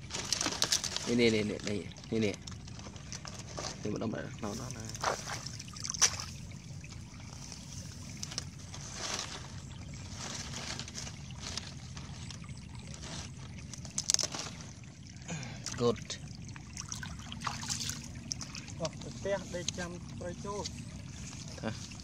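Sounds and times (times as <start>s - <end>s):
dry fronds rustling and crackling: 0.0s - 15.2s
water trickling: 0.0s - 22.0s
fronds snapping: 5.0s - 6.3s.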